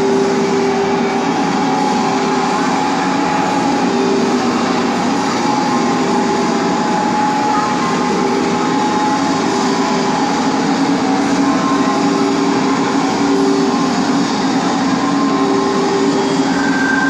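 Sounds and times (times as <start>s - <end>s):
large crowd din in a hall: 0.0s - 17.0s.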